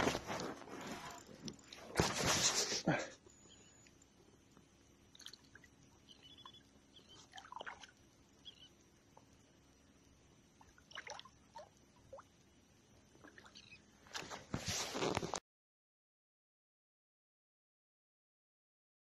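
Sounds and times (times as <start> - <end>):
small water splashes and drips: 5.1 - 6.0, 7.2 - 8.1, 10.6 - 12.4.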